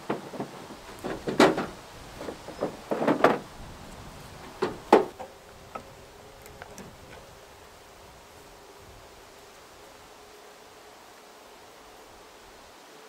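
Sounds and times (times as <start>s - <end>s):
wooden logs knocking: 0.0s - 7.3s
faint rustling: 0.0s - 12.6s.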